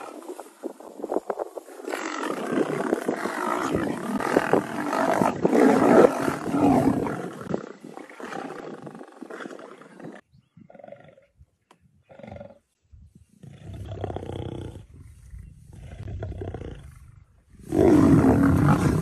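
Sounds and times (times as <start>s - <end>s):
lions and leopard growling: 1.8s - 11.4s, 13.4s - 19.0s.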